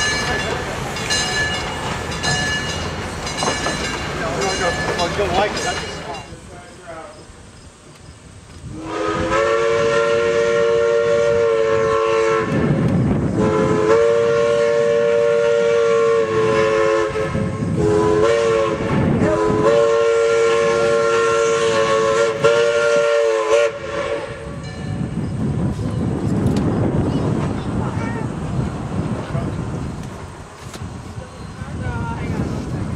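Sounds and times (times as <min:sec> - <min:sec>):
low rumble of train: 0:00.0 - 0:32.9
train horn blasts: 0:08.7 - 0:24.6.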